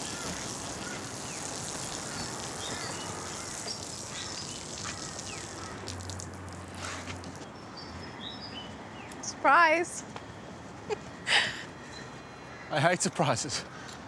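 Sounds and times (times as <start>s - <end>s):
birds chirping: 0.0s - 6.0s
high insect drone: 0.0s - 6.6s.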